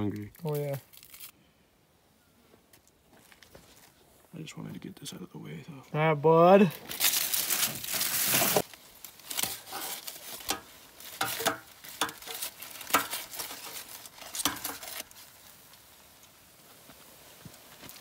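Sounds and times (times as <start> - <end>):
aluminium foil crinkling: 0.0 - 1.4, 6.6 - 18.0.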